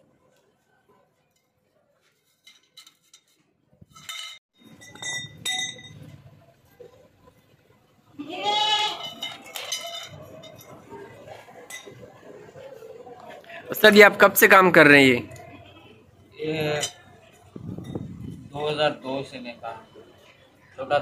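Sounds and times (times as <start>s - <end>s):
steel tubes clinking on concrete: 2.2s - 6.2s, 8.9s - 10.9s, 11.6s - 12.0s.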